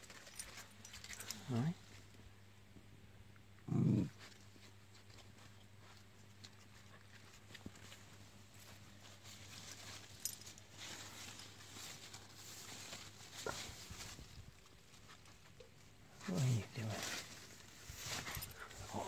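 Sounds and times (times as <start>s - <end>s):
rustling of leaves: 4.2s - 19.0s.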